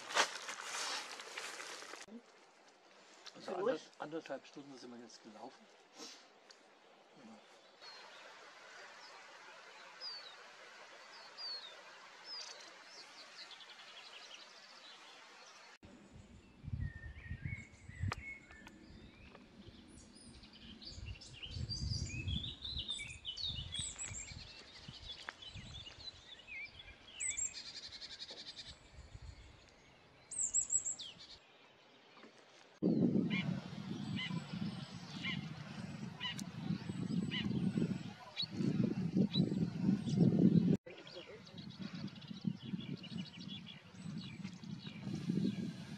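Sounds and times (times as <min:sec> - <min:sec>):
wind buffeting microphone: 0:16.1 - 0:26.2, 0:32.8 - 0:45.9
songbirds chirping and whistling: 0:16.2 - 0:45.9.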